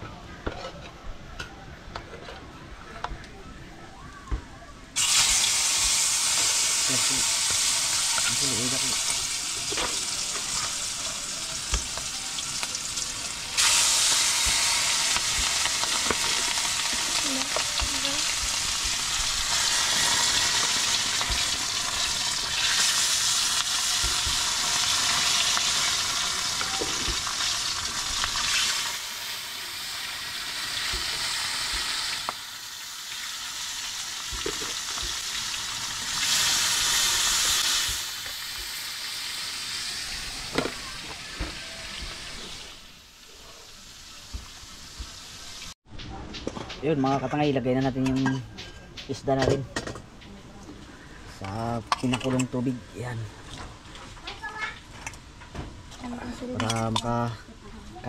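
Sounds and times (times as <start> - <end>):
fish sizzling in a wok: 5.0 - 45.8.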